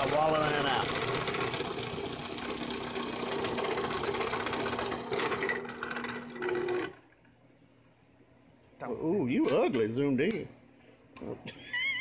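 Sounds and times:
drill press boring into metal: 0:00.0 - 0:07.0.

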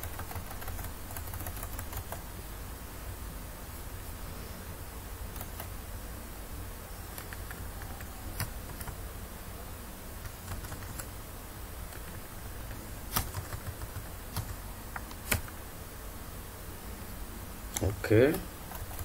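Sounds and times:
keyboard and mouse clicks: 0:07.1 - 0:09.0, 0:11.9 - 0:15.6.

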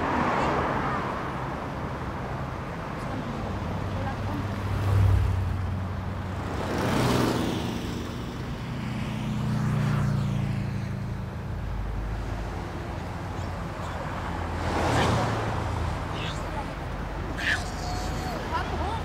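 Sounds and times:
cars driving past: 0:00.0 - 0:19.0.

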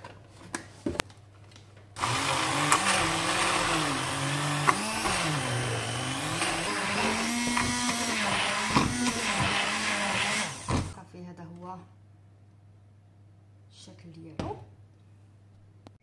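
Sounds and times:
electric mixer running: 0:02.0 - 0:11.0.

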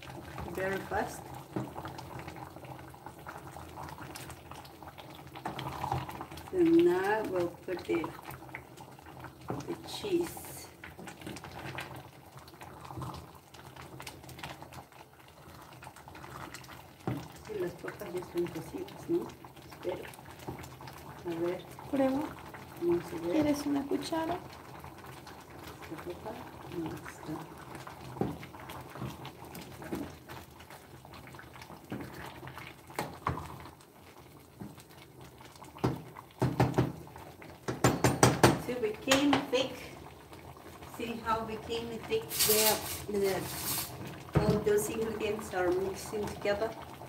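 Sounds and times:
spoon knocking against pot: 0:37.7 - 0:39.5.

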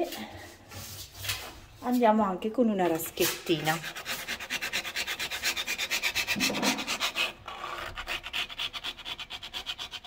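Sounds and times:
hand scraper scraping silicone: 0:02.9 - 0:10.0.

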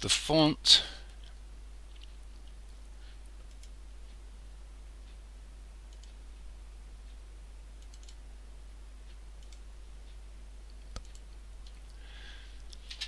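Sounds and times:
steady low hum: 0:00.0 - 0:13.0
computer mouse clicking: 0:01.9 - 0:03.8, 0:05.9 - 0:06.2, 0:07.8 - 0:08.2, 0:09.4 - 0:09.7, 0:10.7 - 0:12.0.

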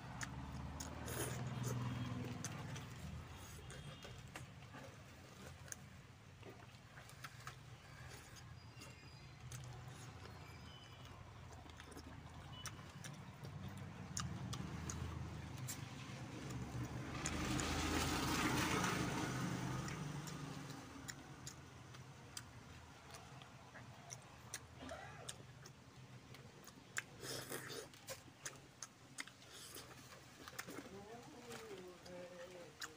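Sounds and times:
motor vehicle passing by: 0:00.0 - 0:05.7, 0:07.0 - 0:24.6
eating by hand clicks and smacks: 0:00.1 - 0:32.9.

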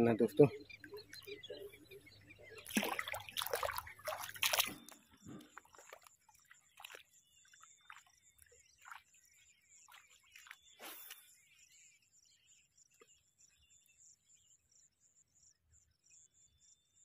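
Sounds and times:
shallow water sloshing: 0:00.5 - 0:11.1
feet wading through water: 0:00.6 - 0:11.2.

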